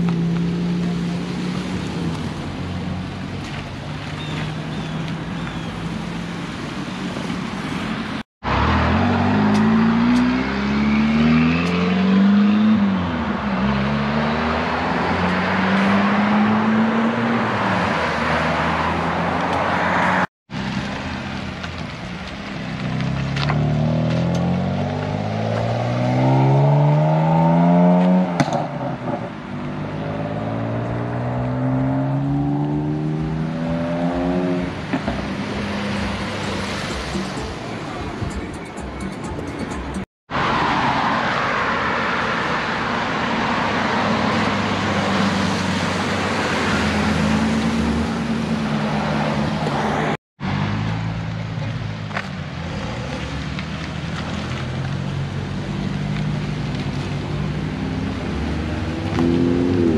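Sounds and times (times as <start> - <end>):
car engines revving: 0.0 - 59.9
tyres hissing on wet road: 51.6 - 59.9.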